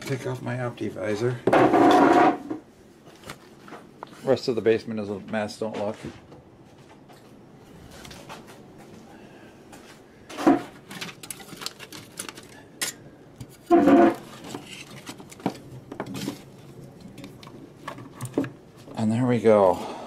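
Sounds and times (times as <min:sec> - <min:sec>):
clicks and clattering of objects: 0:10.3 - 0:19.0.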